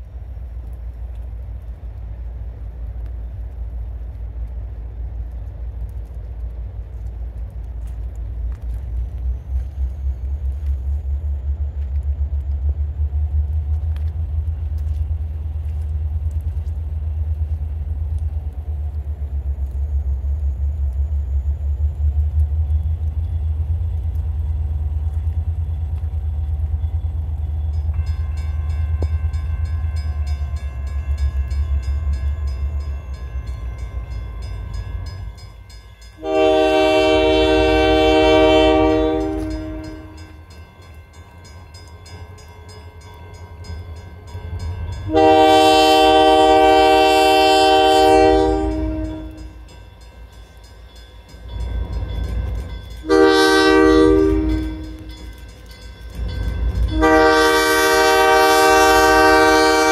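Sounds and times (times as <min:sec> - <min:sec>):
low rumble: 0:00.0 - 0:35.8
crossing warning bell ringing: 0:26.7 - 0:59.9
locomotive air horn blasts: 0:36.2 - 0:40.4, 0:45.1 - 0:49.6, 0:53.0 - 0:55.3, 0:56.9 - 0:59.9.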